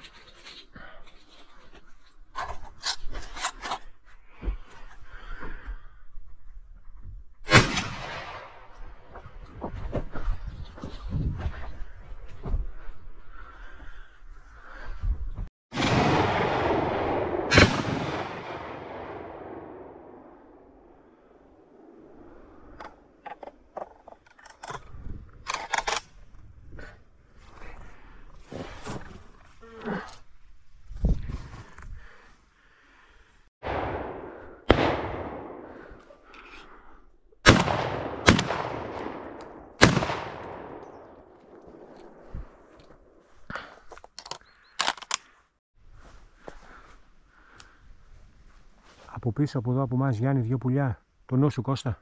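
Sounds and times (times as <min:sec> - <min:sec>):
rubbing and scraping on microphone: 0:00.0 - 0:05.0, 0:09.2 - 0:13.1
sharp loud crack: 0:15.7 - 0:20.4.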